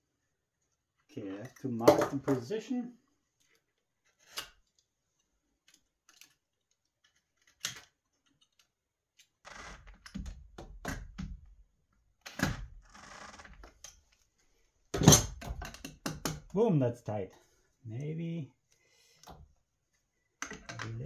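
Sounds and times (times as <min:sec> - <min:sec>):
rustling and clattering of tools: 0:13.3 - 0:16.5.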